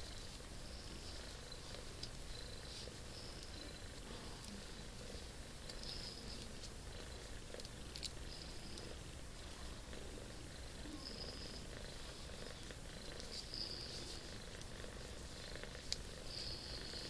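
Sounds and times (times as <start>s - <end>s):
cat purring: 0.0s - 17.0s.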